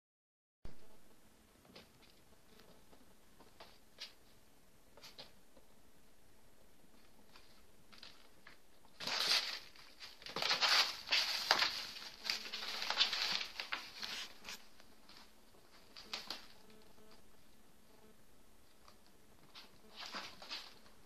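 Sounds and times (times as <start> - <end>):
kittens scrabbling on cardboard: 9.0 - 14.6.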